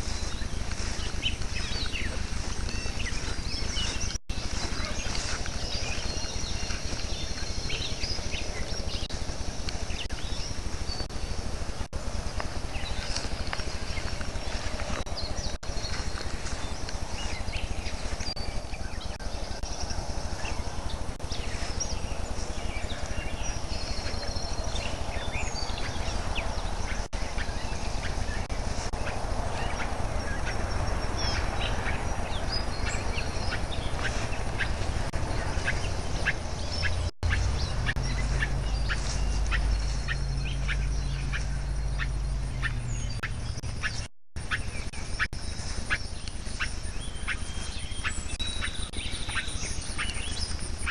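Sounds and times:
steady low rumble: 0.0s - 50.9s.

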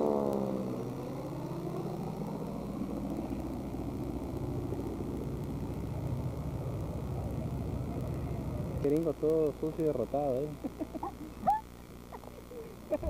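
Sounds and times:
propeller plane droning overhead: 0.0s - 13.0s.

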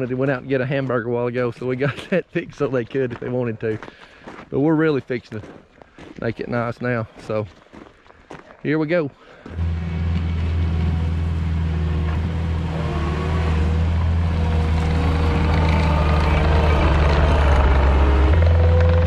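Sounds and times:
diesel engine running: 9.5s - 19.0s.

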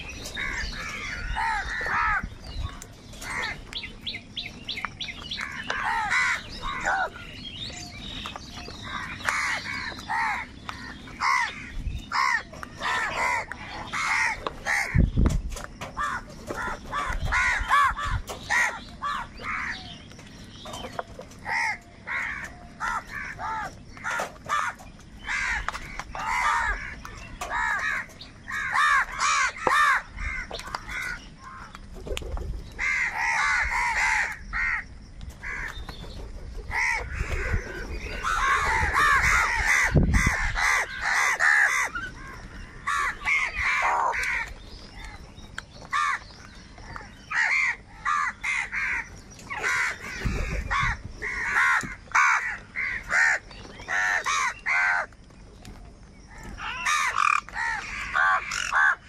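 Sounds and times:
crows cawing: 0.2s - 3.7s, 5.1s - 7.4s, 8.6s - 15.1s, 15.8s - 20.1s, 20.9s - 31.8s, 32.8s - 35.8s, 36.7s - 45.2s, 45.8s - 55.2s, 56.3s - 59.0s.

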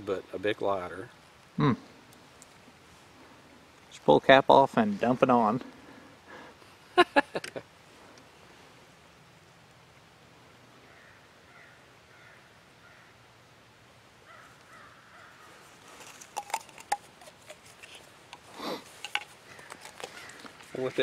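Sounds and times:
crows cawing: 10.8s - 13.2s, 14.2s - 15.6s, 19.1s - 20.8s
clicks and knocks of handling: 16.0s - 20.8s.

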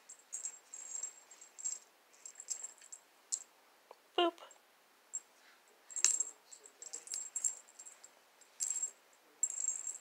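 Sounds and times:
small bell jingling: 0.0s - 3.5s, 5.9s - 10.0s.

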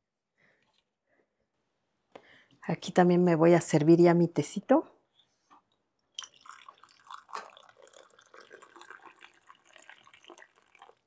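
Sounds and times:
tea pouring into a mug: 6.1s - 11.0s.

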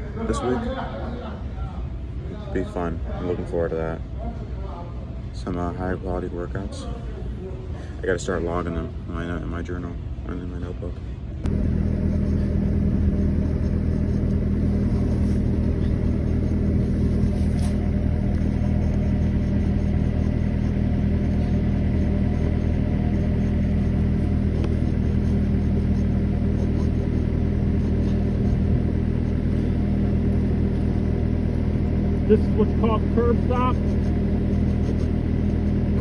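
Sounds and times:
engine idling: 11.5s - 36.0s.

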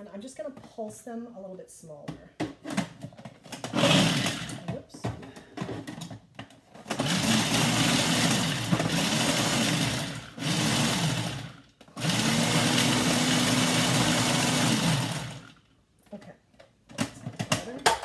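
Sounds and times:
food processor pulsing: 3.6s - 4.7s, 6.8s - 15.6s.

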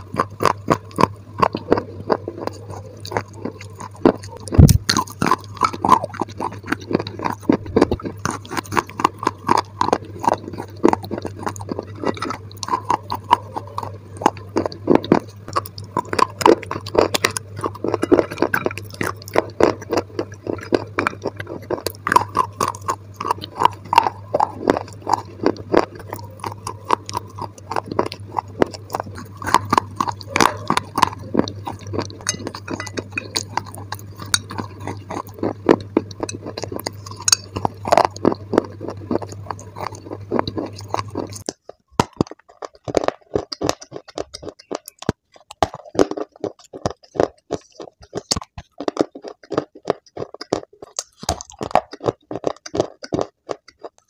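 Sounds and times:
low hum: 0.0s - 41.5s
crunching and chewing clay: 0.0s - 54.0s.

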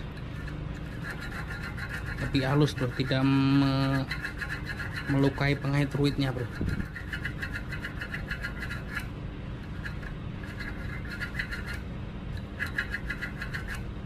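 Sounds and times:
hand file rasping on metal: 0.4s - 9.1s, 9.7s - 11.8s, 12.4s - 13.9s.

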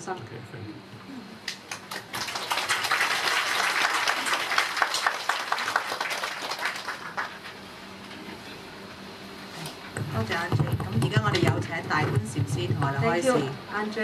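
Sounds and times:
audience applauding: 1.5s - 7.6s.

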